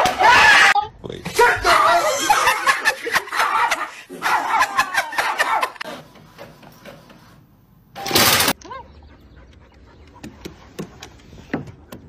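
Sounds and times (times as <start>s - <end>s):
people laughing hard: 1.9s - 5.9s.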